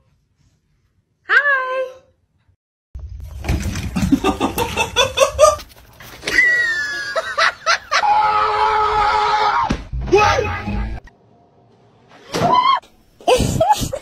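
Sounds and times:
person laughing: 4.0s - 5.7s.

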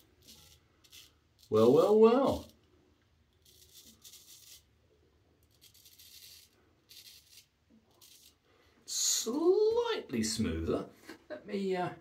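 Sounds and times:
straight razor scraping stubble: 0.0s - 2.6s, 3.4s - 4.7s, 5.4s - 8.4s.

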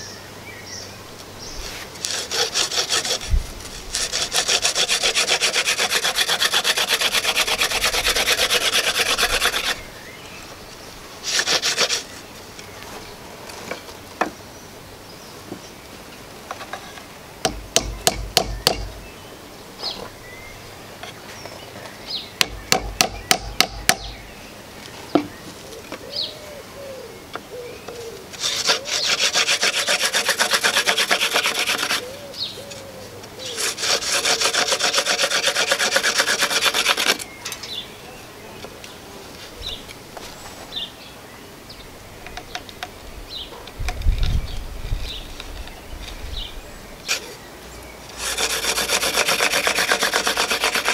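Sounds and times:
hand drill rubbing wooden board: 1.7s - 9.8s, 11.2s - 12.2s, 28.4s - 32.1s, 33.5s - 37.3s, 48.1s - 50.9s
sharp knocks: 17.4s - 18.9s, 22.4s - 24.2s.

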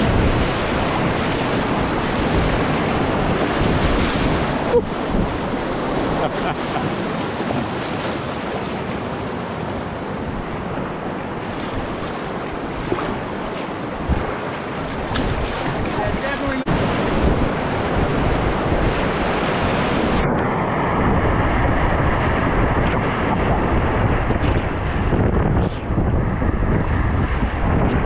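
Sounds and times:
whitewater rushing: 0.0s - 20.9s
wind buffeting microphone: 0.0s - 28.0s.

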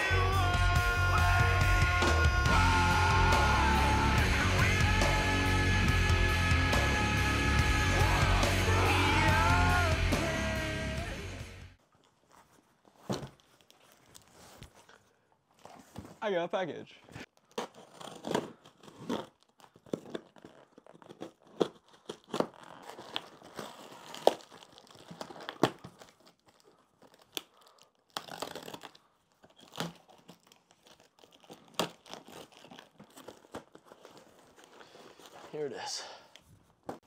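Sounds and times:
tape tearing: 17.3s - 35.6s
cardboard scraping and crinkling: 17.5s - 27.3s, 28.2s - 35.7s.

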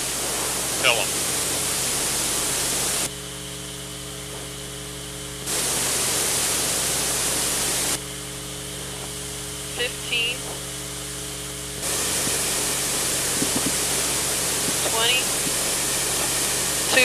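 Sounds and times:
loud hiss of gas venting: 0.0s - 3.1s, 5.5s - 8.0s, 11.8s - 17.0s
low steady hum: 0.0s - 17.0s.

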